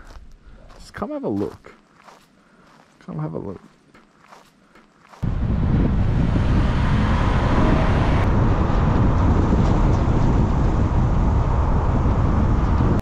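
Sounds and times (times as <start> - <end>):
wind buffeting microphone: 5.2 - 13.0.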